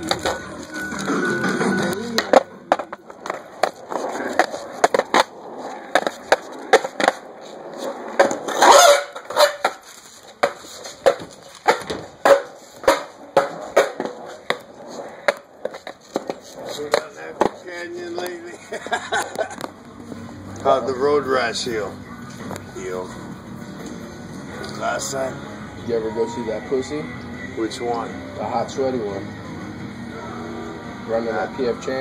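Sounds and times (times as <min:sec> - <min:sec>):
footsteps on concrete: 0:01.8 - 0:18.4.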